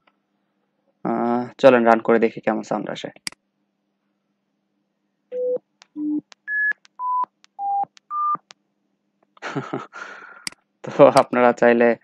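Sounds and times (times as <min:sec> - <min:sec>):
computer beeps: 0:05.3 - 0:08.5
mouse click: 0:05.8 - 0:08.6.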